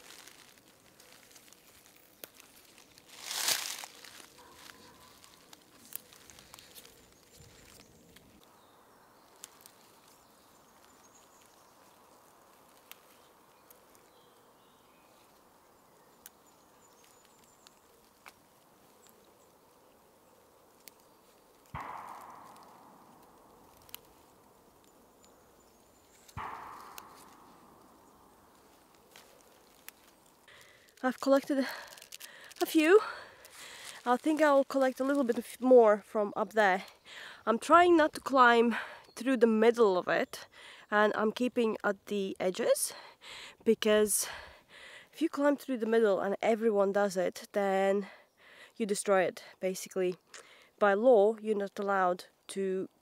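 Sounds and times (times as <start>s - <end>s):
leaves snapping as picked: 0.0s - 14.4s, 15.1s - 19.6s, 20.3s - 35.5s
plants rustling: 0.0s - 40.3s.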